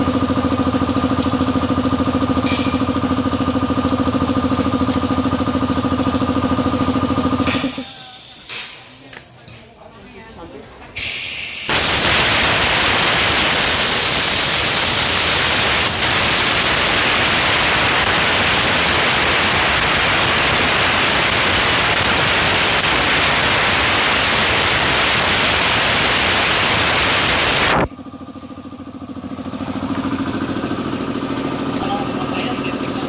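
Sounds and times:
compressed air hissing from valve: 0:07.5 - 0:09.3, 0:11.0 - 0:24.6.

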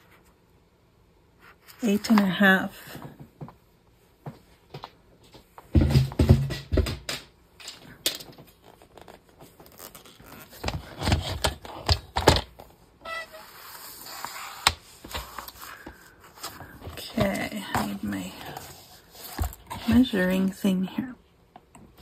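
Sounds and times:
paper rustling: 0:13.3 - 0:20.1.

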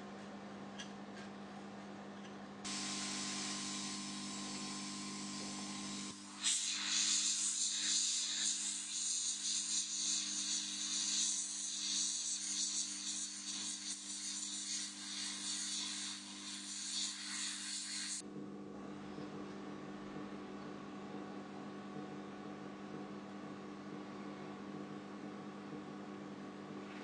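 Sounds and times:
heat gun hissing: 0:02.7 - 0:18.2.

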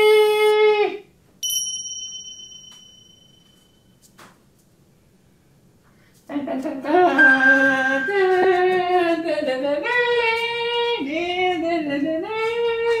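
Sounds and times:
high voice singing: 0:06.4 - 0:13.0.

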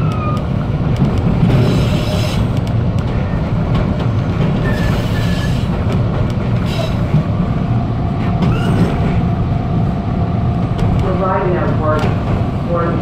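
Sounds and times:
subway train rumble: 0:00.0 - 0:13.0
high wheel squeals: 0:04.6 - 0:05.7, 0:08.5 - 0:09.0.

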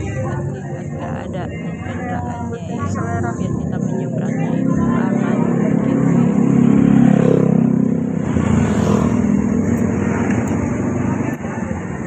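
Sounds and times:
motor scooter engine running: 0:00.0 - 0:12.0.

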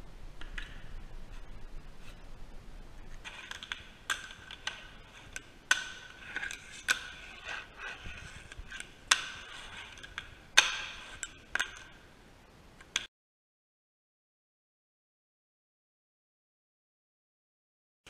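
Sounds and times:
fingerboard wheels rasping on wood: 0:06.1 - 0:10.0.

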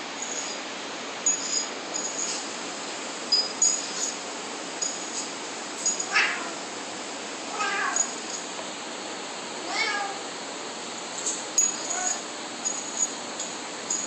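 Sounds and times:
cat meowing: 0:06.1 - 0:06.6, 0:07.5 - 0:08.2, 0:09.6 - 0:10.2, 0:11.8 - 0:12.2.

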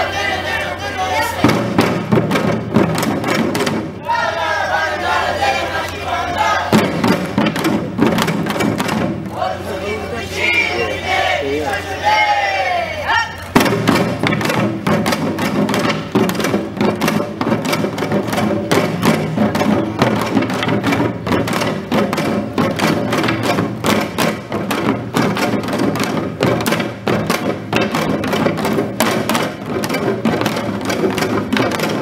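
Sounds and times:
small hand drums: 0:00.0 - 0:09.7, 0:13.3 - 0:32.0
hourglass drums playing fast rhythm: 0:00.0 - 0:11.5, 0:13.4 - 0:32.0.

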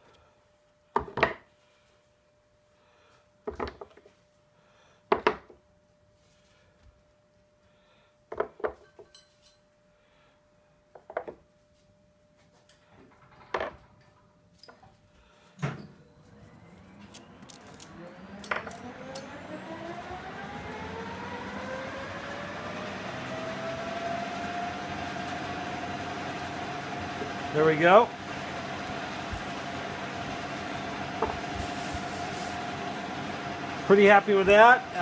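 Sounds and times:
lathe motor whine: 0:16.1 - 0:35.0.

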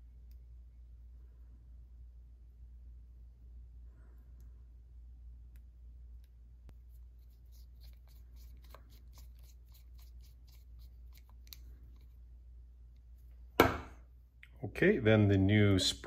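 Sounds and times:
steady low hum: 0:00.0 - 0:16.0
sharp knock: 0:13.6 - 0:14.0.

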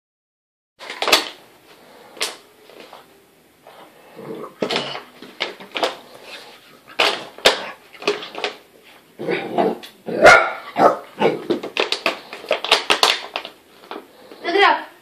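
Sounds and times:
plastic bottle crackling and knocking: 0:00.8 - 0:01.4, 0:04.6 - 0:06.0, 0:06.9 - 0:08.6, 0:11.4 - 0:14.1.

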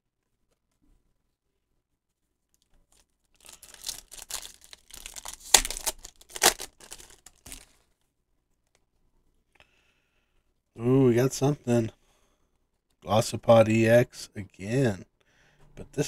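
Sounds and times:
foil wrapper tearing: 0:02.9 - 0:07.8.

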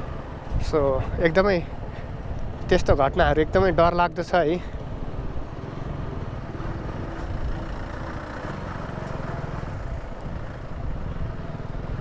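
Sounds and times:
wind rumble on microphone: 0:00.0 - 0:06.4, 0:09.6 - 0:12.0.

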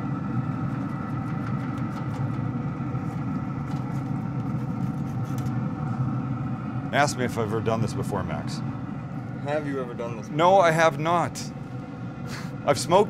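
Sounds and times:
smoker mechanical hum: 0:00.0 - 0:13.0
steady tones: 0:05.6 - 0:13.0.

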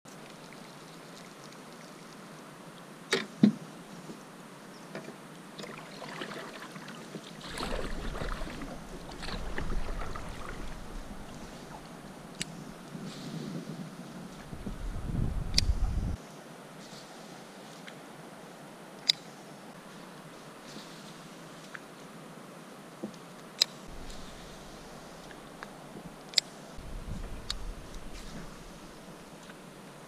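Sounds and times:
paddle splashing in water: 0:05.6 - 0:12.4, 0:23.9 - 0:26.2, 0:26.8 - 0:29.5
water dripping: 0:07.4 - 0:12.6, 0:23.9 - 0:29.6.

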